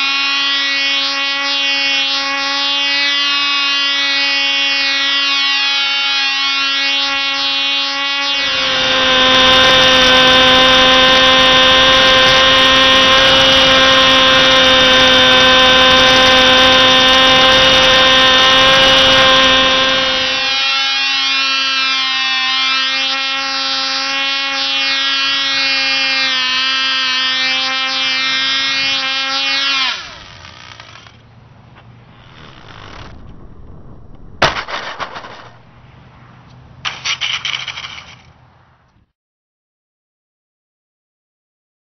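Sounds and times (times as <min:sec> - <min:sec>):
model plane engine high-pitched buzz: 0:00.0 - 0:35.8, 0:36.9 - 0:38.3
loud rushing noise: 0:31.9 - 0:36.5.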